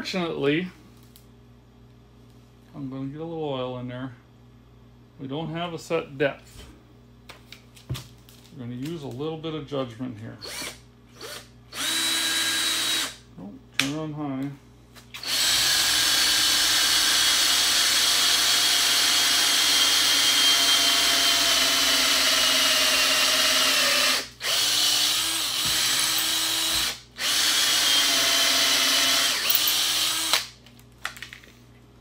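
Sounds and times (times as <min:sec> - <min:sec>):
cordless drill whining: 0:10.4 - 0:13.2, 0:15.2 - 0:30.5.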